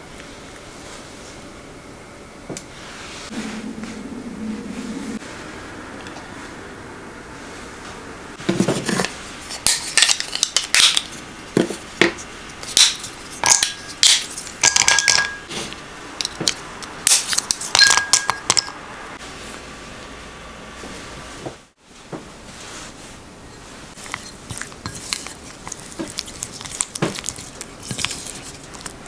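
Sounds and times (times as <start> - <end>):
pieces clinking into glass bowl: 12.8 - 15.5.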